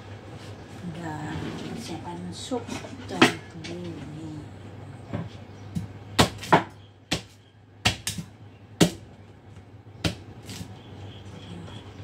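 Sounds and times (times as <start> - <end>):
cleaver chopping on wooden board: 5.8 - 9.0, 10.0 - 10.6.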